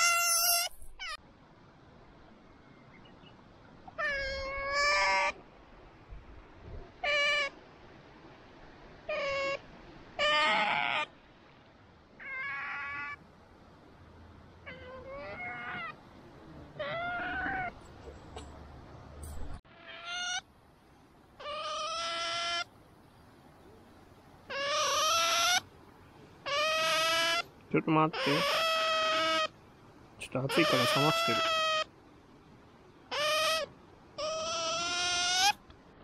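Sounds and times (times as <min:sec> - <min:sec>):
otter whining squeals: 0:00.0 - 0:01.2.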